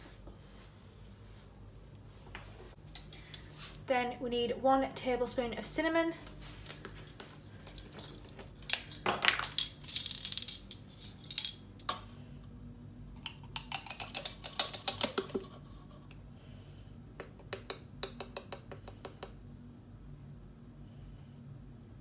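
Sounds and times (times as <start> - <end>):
metal spoons jangling: 7.7 - 11.6.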